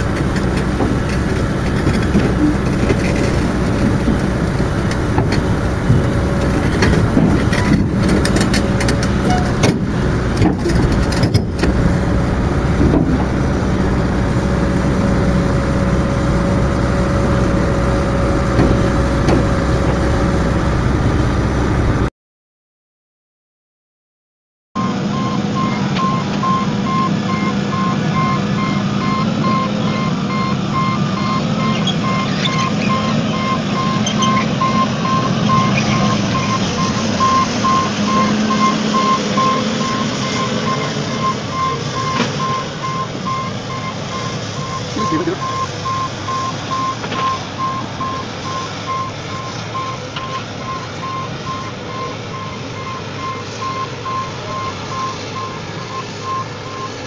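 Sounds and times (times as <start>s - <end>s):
diesel excavator engine under load: 0.0s - 22.1s, 24.8s - 57.0s
warning alarm beeping: 24.8s - 57.0s.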